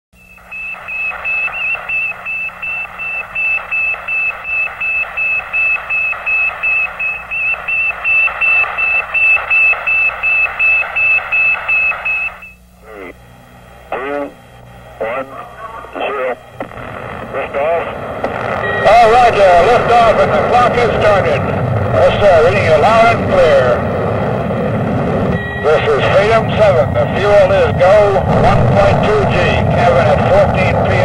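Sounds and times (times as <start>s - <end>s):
high-pitched radio beeps: 0.2s - 13.2s, 15.0s - 23.6s, 25.2s - 31.0s
receiver hiss: 0.2s - 31.0s
falling radio whistle: 0.3s - 12.6s.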